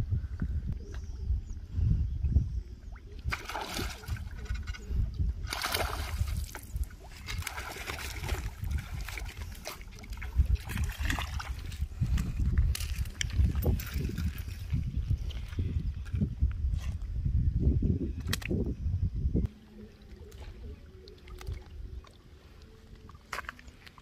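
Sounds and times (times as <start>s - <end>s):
fish splashing in water: 3.2s - 4.4s, 5.5s - 11.6s.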